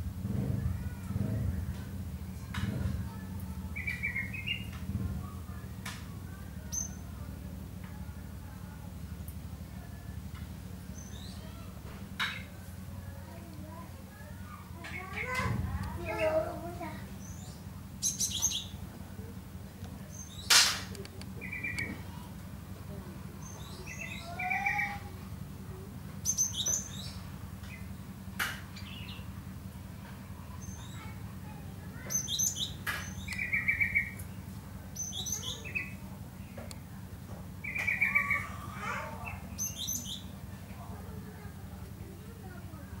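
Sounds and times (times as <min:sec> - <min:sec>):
songbird trills and chirps: 0:03.7 - 0:04.8, 0:17.2 - 0:18.9, 0:21.4 - 0:22.3, 0:23.4 - 0:25.1, 0:26.2 - 0:27.9, 0:28.7 - 0:29.3, 0:30.5 - 0:31.2, 0:31.9 - 0:36.8, 0:37.6 - 0:40.4.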